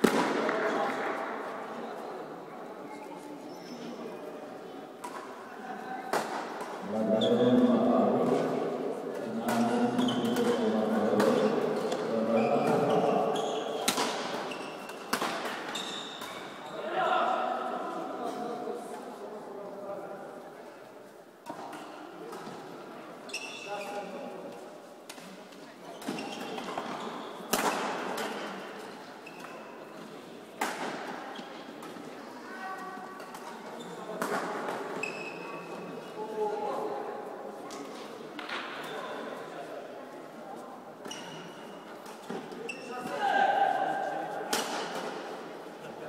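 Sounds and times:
racket hitting shuttlecock: 0.0 - 0.7, 13.8 - 16.5, 26.0 - 28.6, 30.6 - 31.2, 44.5 - 45.2
racket striking shuttlecock: 13.8 - 16.4.

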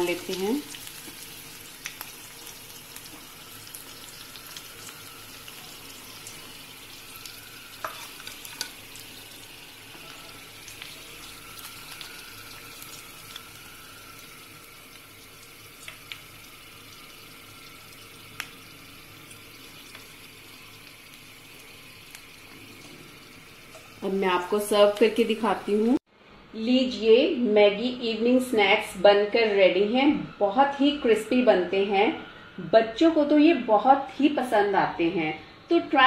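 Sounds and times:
ghee sizzling in a pan: 0.0 - 26.0.

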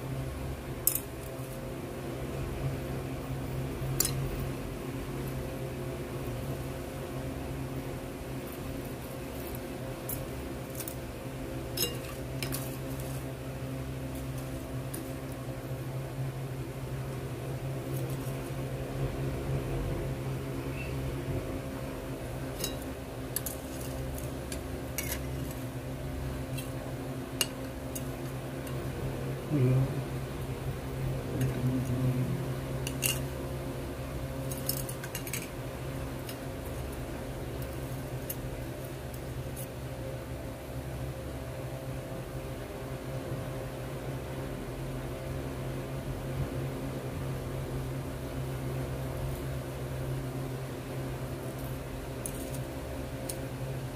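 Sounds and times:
steady low hum: 0.0 - 53.9
metal spoon stirring in bowl: 11.7 - 13.2, 22.5 - 25.6.

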